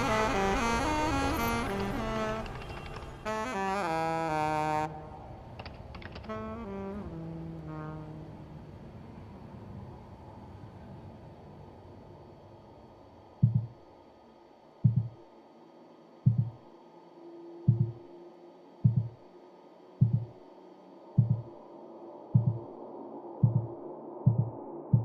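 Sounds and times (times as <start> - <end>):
faint low hum: 0.0 - 25.0
heartbeat double thumps: 13.4 - 13.8, 14.8 - 15.2, 16.2 - 16.6, 17.7 - 18.0, 18.8 - 19.2, 20.0 - 20.4, 21.2 - 21.5, 22.3 - 22.7, 23.4 - 25.0.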